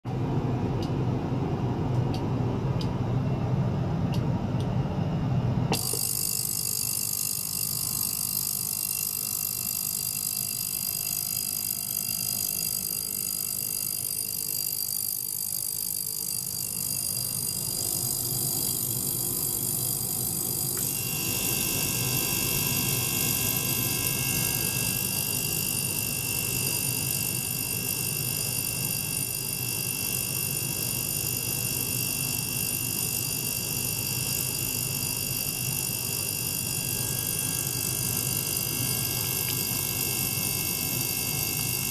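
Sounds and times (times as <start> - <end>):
steady tone: 0.1 - 29.0
ultrasonic cleaner whine and hiss: 16.8 - 27.7.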